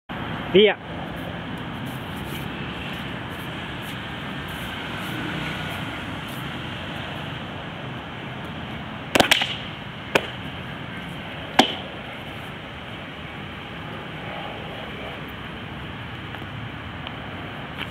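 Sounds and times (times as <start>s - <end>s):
distant road traffic hum: 0.1s - 17.9s
stick knocks: 9.2s - 10.4s, 11.5s - 11.9s.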